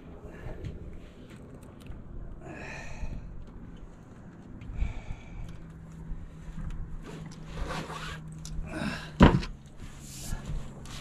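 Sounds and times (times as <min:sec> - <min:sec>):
steady low hum: 0:00.0 - 0:11.0
rustling and scraping: 0:05.9 - 0:11.0.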